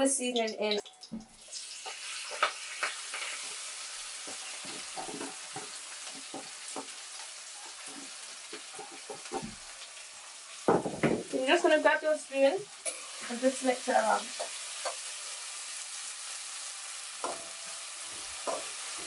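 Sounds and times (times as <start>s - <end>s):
vegetables sizzling in hot oil: 0.0s - 19.0s
oil pops and crackles: 0.8s - 3.5s.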